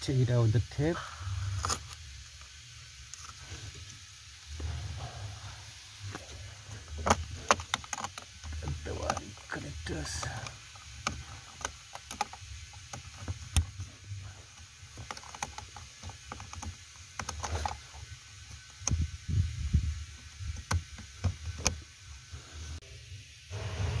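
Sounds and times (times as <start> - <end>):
rustling of wiring: 1.0 - 22.8
plastic clicks and knocks: 14.9 - 17.9, 20.5 - 21.8.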